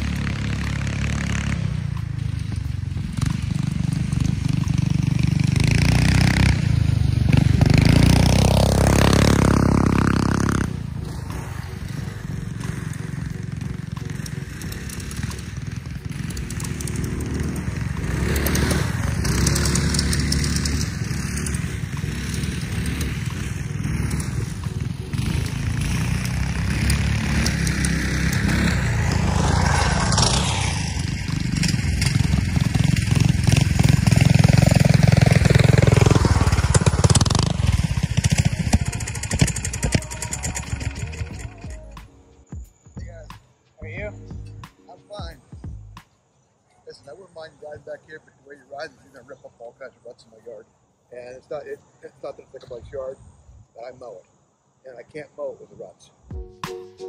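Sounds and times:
go-kart engine running: 0.0s - 42.0s.

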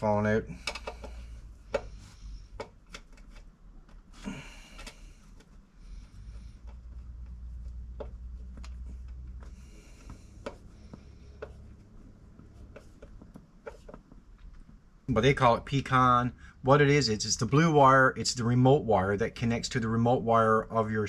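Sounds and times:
low steady hum: 0.0s - 21.0s
small clicks and knocks: 0.6s - 4.1s, 4.7s - 14.8s.

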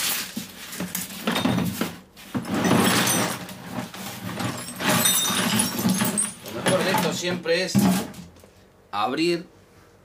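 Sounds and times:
metal parts clattering onto tile: 2.4s - 7.2s.

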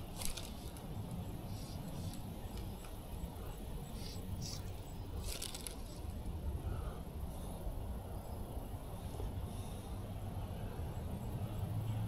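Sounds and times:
fly line swishing and rasping: 0.0s - 6.3s.

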